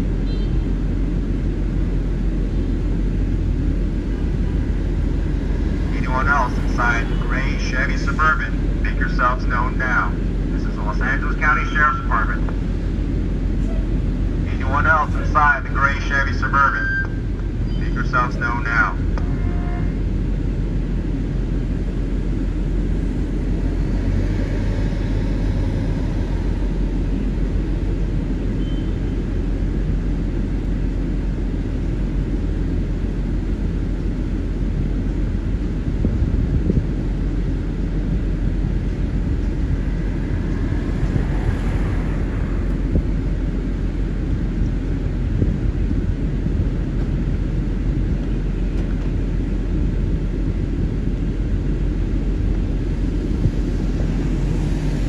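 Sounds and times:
street traffic rumble: 0:00.0 - 0:55.0
car passing: 0:23.0 - 0:28.4, 0:38.6 - 0:45.2, 0:53.2 - 0:55.0.

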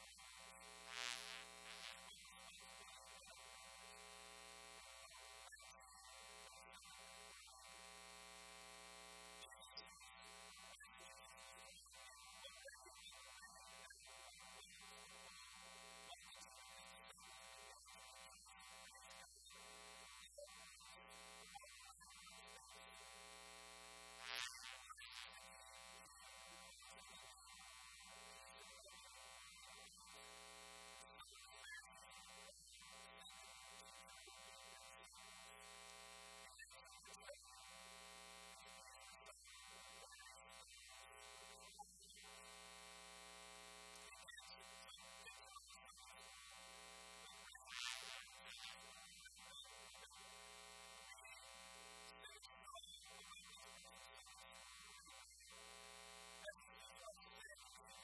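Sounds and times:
faint electrical hum with buzz: 0:00.0 - 0:05.4.

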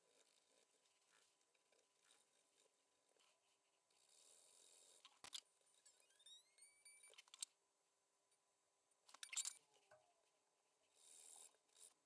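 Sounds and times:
faint squeaky tone: 0:05.7 - 0:07.6, 0:09.2 - 0:10.3.

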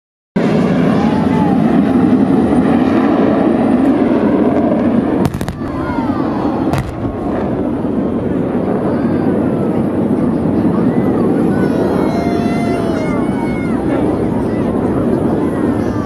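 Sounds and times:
jet engines flying low overhead: 0:00.4 - 0:16.0
pyrotechnic charges cracking: 0:05.2 - 0:06.0, 0:06.7 - 0:07.7.

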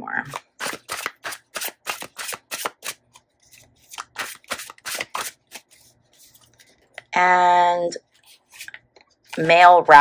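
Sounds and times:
cards being shuffled: 0:00.3 - 0:07.0.

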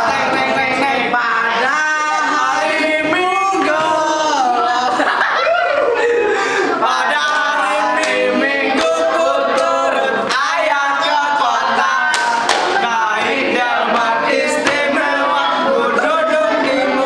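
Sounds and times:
boys singing together: 0:00.0 - 0:17.0
hand claps: 0:12.1 - 0:12.8.

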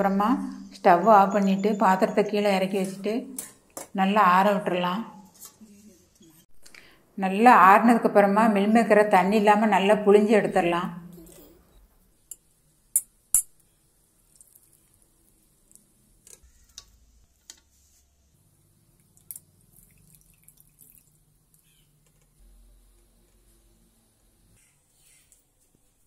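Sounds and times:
water dripping: 0:14.2 - 0:15.9, 0:18.9 - 0:22.0.

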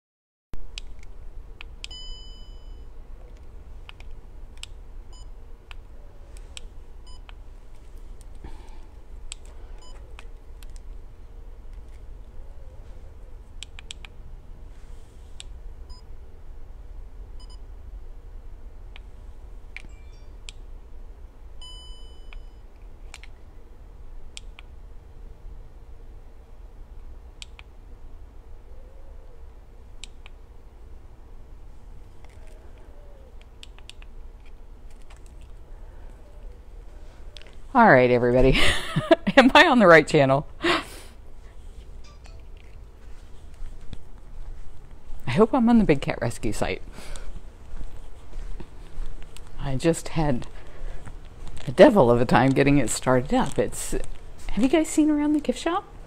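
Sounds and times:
steady low hum: 0:00.6 - 0:56.0
short electronic beeps: 0:01.9 - 0:02.9.

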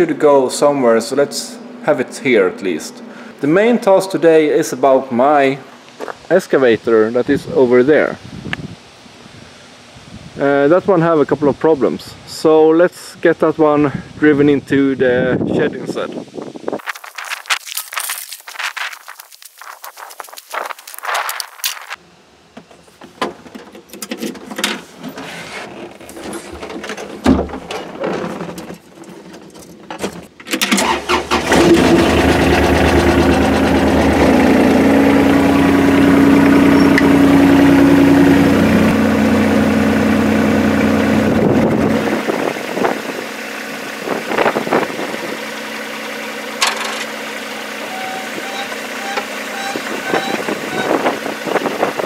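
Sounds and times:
diesel engine starting and running: 0:00.1 - 0:03.8, 0:30.6 - 0:52.0.

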